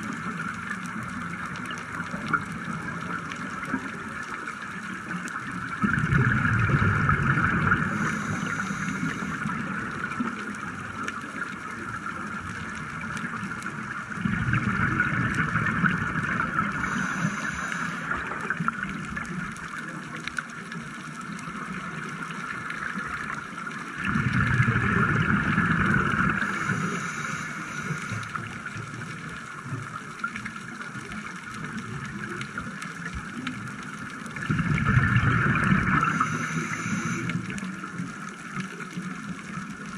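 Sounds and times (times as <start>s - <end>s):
bubbles gurgling underwater: 0.0s - 39.9s
steady underwater hiss: 0.0s - 39.9s
diver breathing through regulator: 7.8s - 9.5s, 16.7s - 18.4s, 26.3s - 28.4s, 35.8s - 37.5s.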